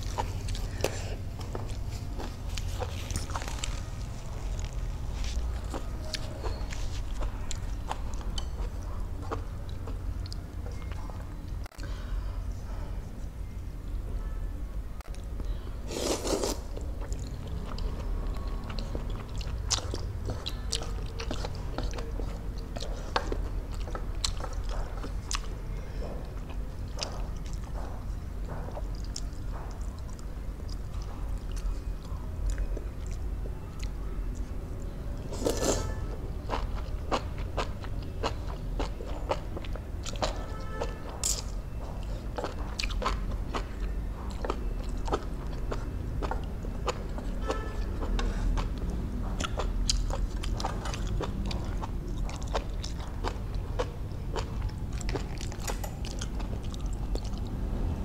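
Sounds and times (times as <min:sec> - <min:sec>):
steady low hum: 0:00.0 - 0:58.0
slurping noodles: 0:15.9 - 0:16.7
lip smacks and chewing: 0:41.3 - 0:57.6.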